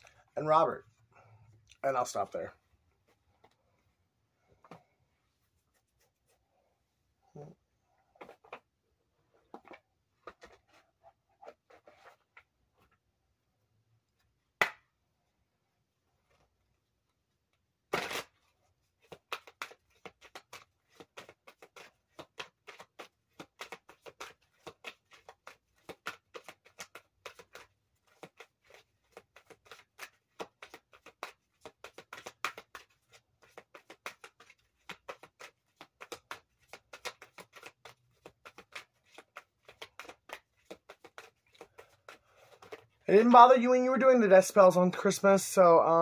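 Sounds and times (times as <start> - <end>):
cards being shuffled: 17.9 - 44.4.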